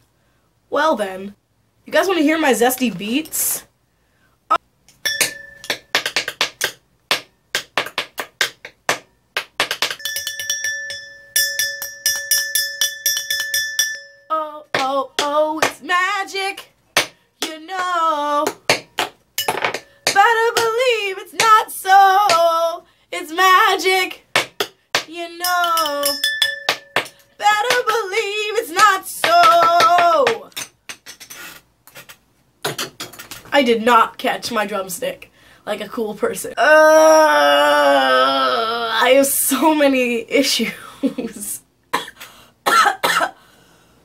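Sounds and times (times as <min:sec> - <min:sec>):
drumsticks tapping: 0:05.1 - 0:13.6
woman singing: 0:14.3 - 0:16.7, 0:17.4 - 0:18.8, 0:20.0 - 0:24.3, 0:25.0 - 0:26.2, 0:27.4 - 0:30.5.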